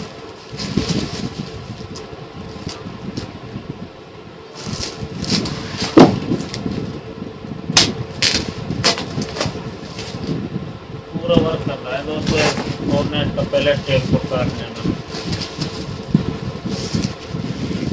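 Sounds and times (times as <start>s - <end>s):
plastic sacking rustling: 0.0s - 3.3s, 4.5s - 6.9s, 12.2s - 17.9s
faint steady hum: 0.0s - 17.9s.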